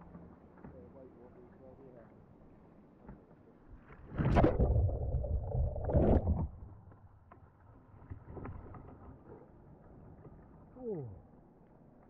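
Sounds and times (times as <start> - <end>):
water splashing around kayak: 3.8 - 7.1.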